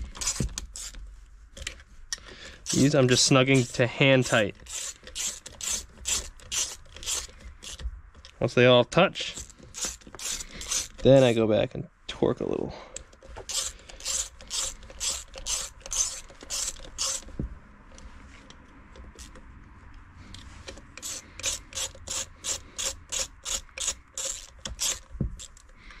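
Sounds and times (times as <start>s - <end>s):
socket ratchet clicking: 0.0s - 1.0s, 1.6s - 8.4s, 9.3s - 11.3s, 13.0s - 17.4s, 18.9s - 19.5s, 20.4s - 26.0s.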